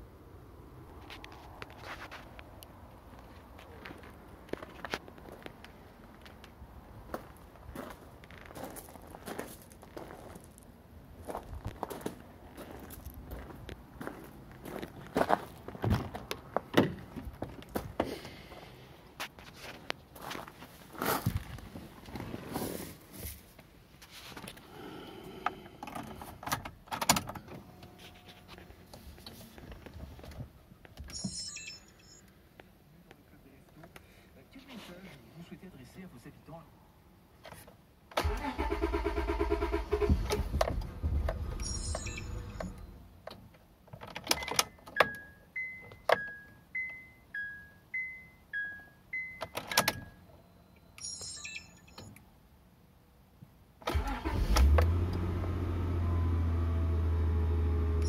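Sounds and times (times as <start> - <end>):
car engine rumble: 38.2 - 43.2, 53.9 - 58.0
car warning chime beeping: 41.4 - 43.0, 44.4 - 52.2.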